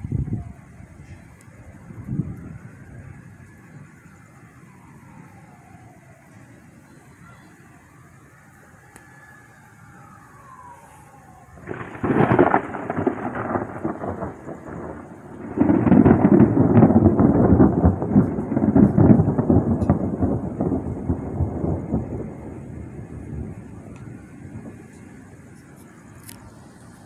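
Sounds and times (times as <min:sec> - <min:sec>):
crackling thunder peal: 0:11.4 - 0:27.0
rumbling thunder peal: 0:11.6 - 0:25.5.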